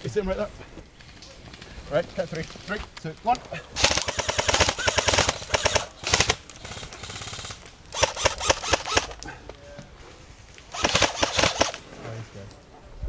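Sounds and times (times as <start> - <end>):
airsoft rifles firing bursts: 3.8 - 9.2, 10.7 - 11.8.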